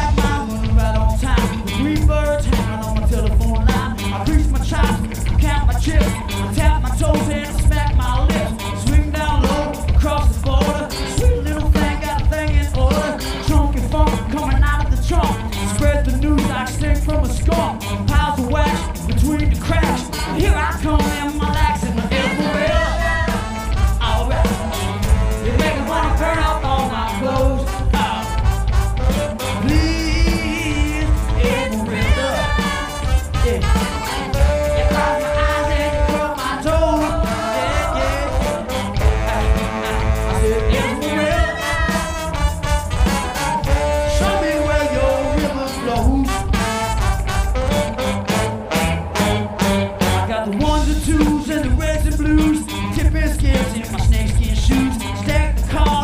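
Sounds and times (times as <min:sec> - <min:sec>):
live band playing: 0:00.0 - 0:56.0
steady drum beat: 0:00.0 - 0:56.0
horn section holding notes: 0:22.1 - 0:50.6
person singing into microphone: 0:29.6 - 0:42.4, 0:43.7 - 0:46.5.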